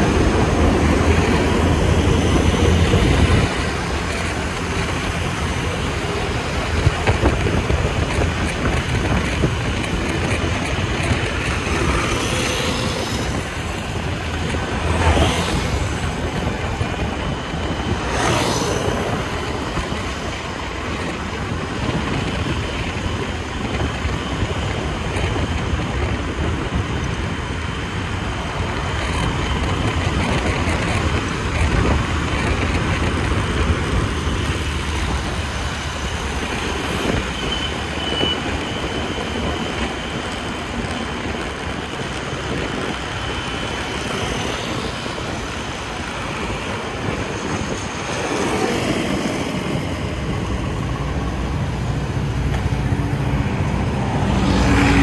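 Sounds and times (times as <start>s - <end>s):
passing vehicles: 0.0s - 55.0s
scooter engine: 0.0s - 55.0s.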